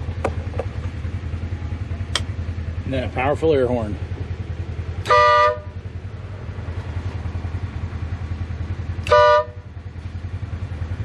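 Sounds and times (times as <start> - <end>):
vehicle engine idling: 0.0 - 11.0
air horn blasts: 5.0 - 5.8, 9.0 - 9.7.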